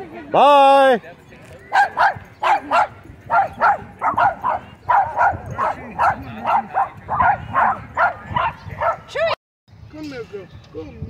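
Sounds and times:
dog barking: 1.7 - 9.1.

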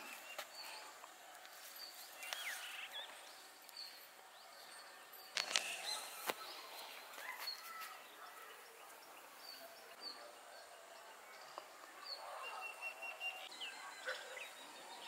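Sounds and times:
rustles: 0.0 - 9.0
birds chirping: 0.0 - 15.0.

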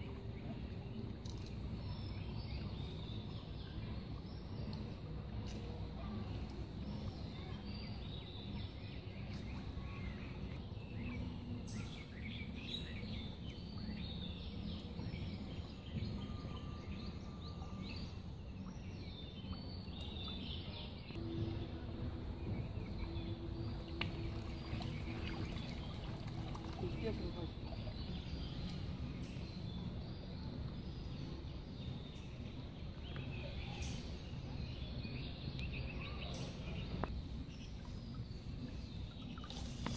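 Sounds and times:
faint steady hum: 0.0 - 39.9
low background rumble: 0.0 - 39.9.

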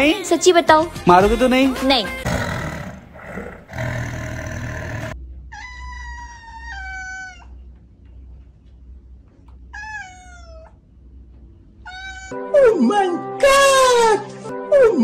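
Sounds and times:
cat meowing: 9.7 - 10.8, 11.8 - 12.5.

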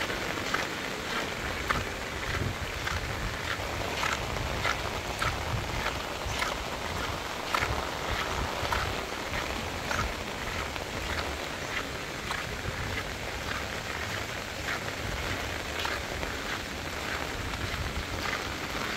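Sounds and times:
splashing footsteps: 0.0 - 18.9
steady rain on wet road: 0.0 - 18.9.

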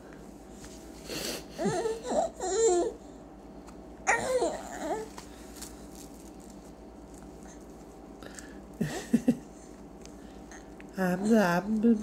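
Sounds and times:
baby babbling: 1.6 - 3.0, 4.1 - 5.1.

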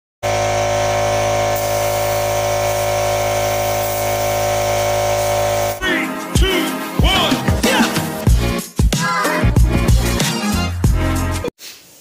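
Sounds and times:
power tool motor running: 0.2 - 5.8
upbeat funk music: 5.7 - 11.5.

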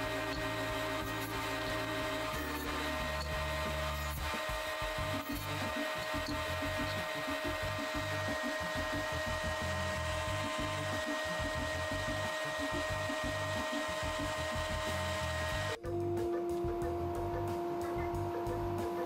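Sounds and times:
spindle moulder whining: 0.0 - 19.0.

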